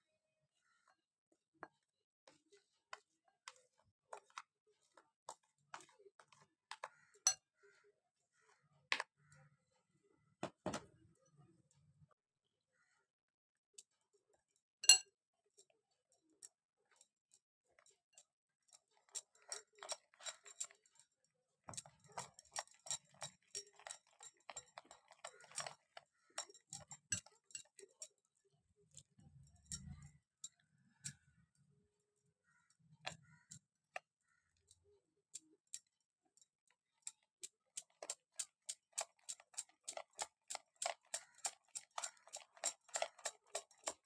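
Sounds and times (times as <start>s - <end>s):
spoon clinking against glass bowl: 14.8s - 15.2s, 19.0s - 21.1s, 21.7s - 28.2s, 37.8s - 44.0s.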